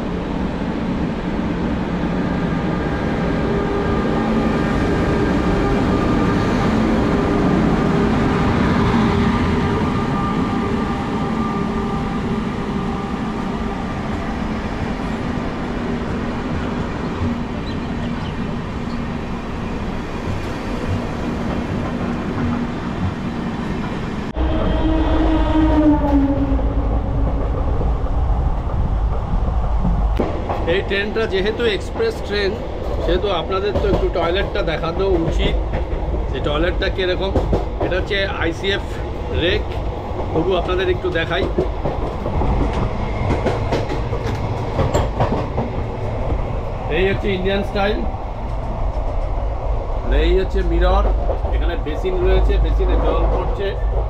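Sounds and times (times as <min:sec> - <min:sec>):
train wheels rumbling on rail: 0:00.0 - 0:54.0
rumble inside passenger coach: 0:25.8 - 0:54.0.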